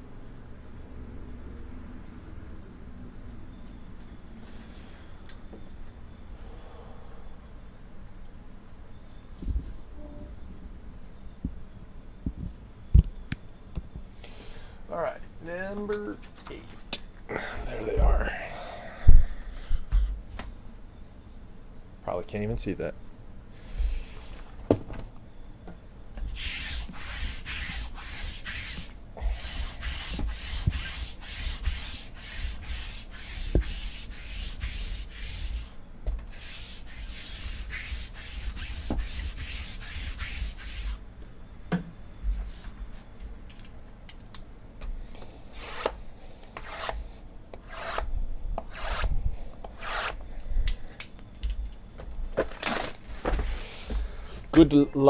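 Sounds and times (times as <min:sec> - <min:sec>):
lint roller rubbing on table: 0:26.3 - 0:41.0, 0:47.6 - 0:48.0, 0:48.7 - 0:49.1, 0:49.8 - 0:50.2.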